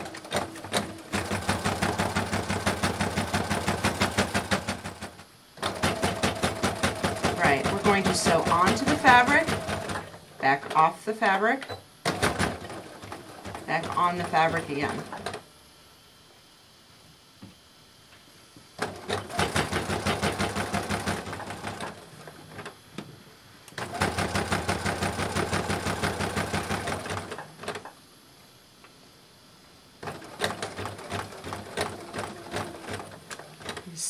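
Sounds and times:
sewing machine stitching: 0:00.0 - 0:10.9, 0:12.0 - 0:15.4, 0:18.8 - 0:22.7, 0:23.8 - 0:27.9, 0:30.0 - 0:33.9.

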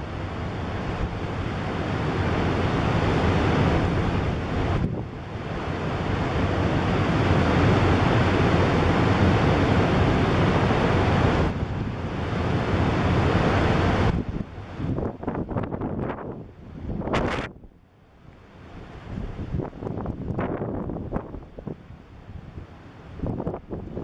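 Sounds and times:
heavy surf breaking: 0:00.0 - 0:17.6
wind buffeting microphone: 0:00.0 - 0:17.8, 0:18.8 - 0:24.0.

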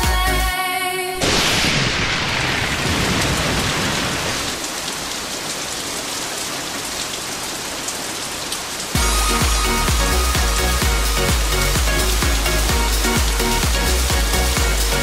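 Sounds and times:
music: 0:00.0 - 0:01.2, 0:09.0 - 0:15.0.

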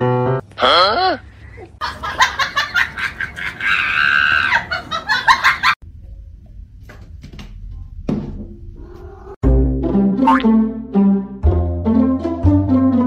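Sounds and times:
loud laughter: 0:01.8 - 0:05.8.

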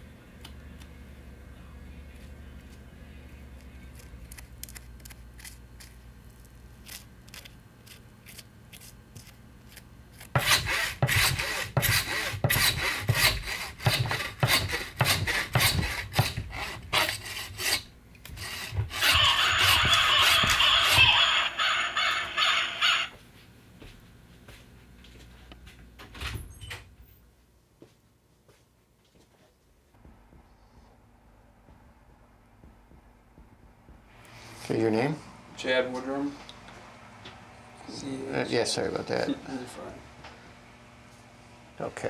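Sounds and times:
rasping strokes: 0:06.9 - 0:21.2.

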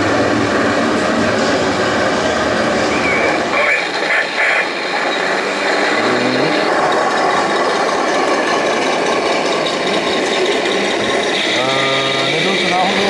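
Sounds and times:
clatter of gears and tracks: 0:00.0 - 0:13.0
rising motor whine: 0:00.0 - 0:13.0.

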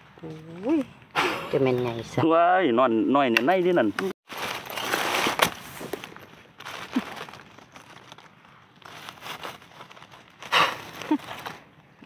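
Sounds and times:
dry leaves rustling: 0:03.7 - 0:11.8.

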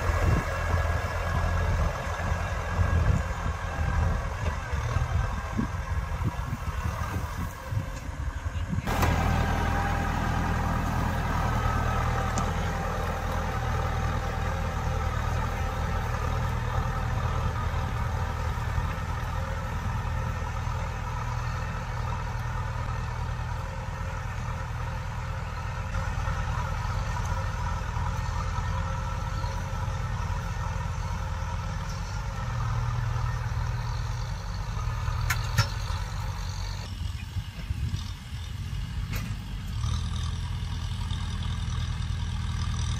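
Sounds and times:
tractor diesel engine under load: 0:00.0 - 0:42.9.

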